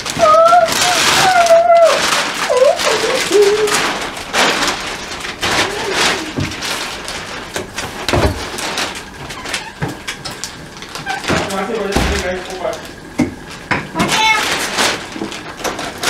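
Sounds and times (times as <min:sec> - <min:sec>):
laundry and bag rustling: 0:00.0 - 0:16.0.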